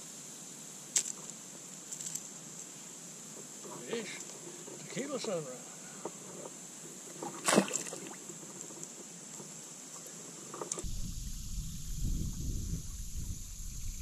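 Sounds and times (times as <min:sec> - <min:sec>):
high insect drone: 0:00.0 - 0:14.0
fish splashing into water: 0:07.2 - 0:08.2
wind rumble on microphone: 0:10.8 - 0:14.0.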